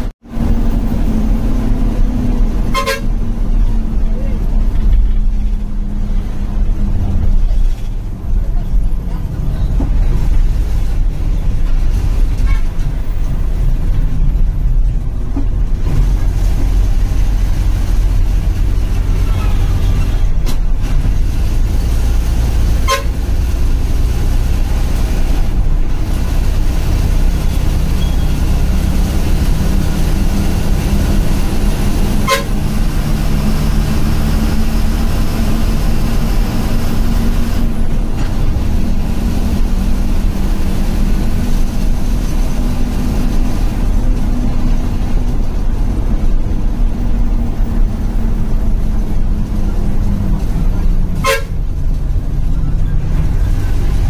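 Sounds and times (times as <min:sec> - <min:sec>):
bus engine drone: 0:00.0 - 0:54.0
horn toots: 0:02.5 - 0:03.3, 0:22.8 - 0:23.3, 0:32.0 - 0:32.8, 0:51.2 - 0:51.7.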